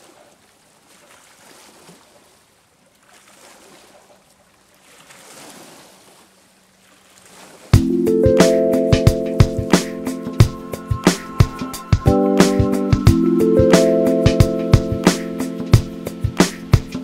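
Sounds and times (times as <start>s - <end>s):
small waves lapping: 0.0s - 8.8s, 12.4s - 17.0s.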